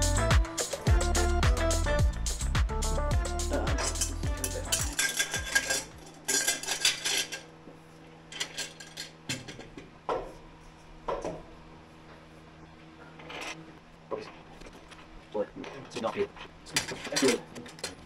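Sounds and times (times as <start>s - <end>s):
rapid metallic rattles: 3.8s - 7.4s
metal pipes clinking and knocking: 3.8s - 7.5s.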